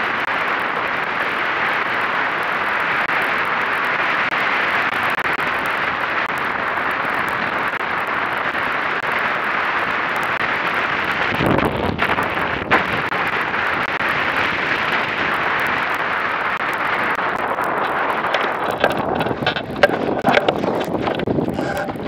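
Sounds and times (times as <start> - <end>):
water rushing along hull: 0.0 - 22.0
wind buffeting microphone: 0.0 - 22.0
boat knocks and rattles: 17.1 - 22.0.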